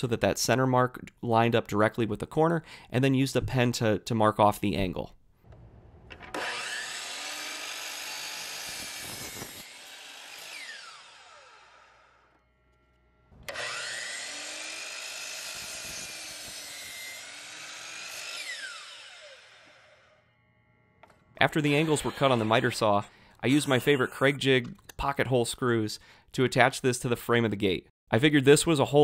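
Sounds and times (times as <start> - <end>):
miter saw cutting wood: 5.5 - 20.4, 21.0 - 24.1
saw motor winding down whine: 5.5 - 24.0.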